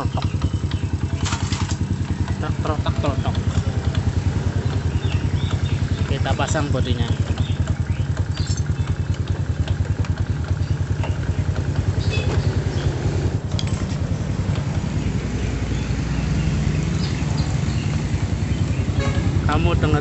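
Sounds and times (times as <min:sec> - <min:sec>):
motorcycle engine idling: 0:00.0 - 0:20.0.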